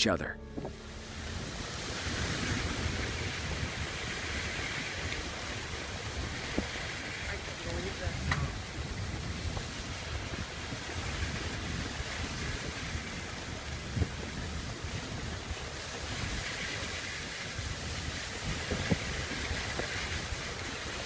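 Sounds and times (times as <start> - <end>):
low thump: 0.4 - 1.4
wind buffeting microphone: 0.5 - 21.0.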